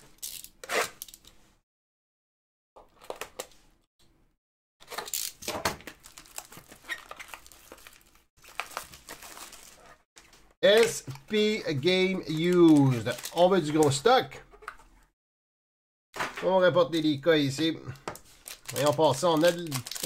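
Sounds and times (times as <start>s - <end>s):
plastic wrap crinkling: 5.8s - 10.0s, 10.7s - 14.1s, 18.0s - 20.0s
blade cutting shrink wrap: 18.5s - 20.0s.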